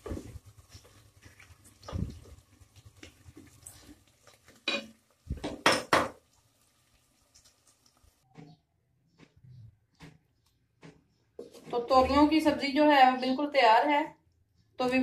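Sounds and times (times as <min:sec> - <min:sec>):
wooden spoon scraping metal pot: 0:09.2 - 0:12.6.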